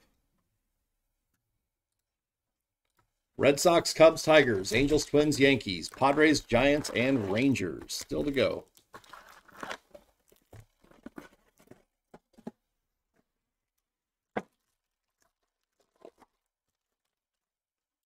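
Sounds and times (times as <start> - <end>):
cards rustling and tearing: 4.2 - 11.8.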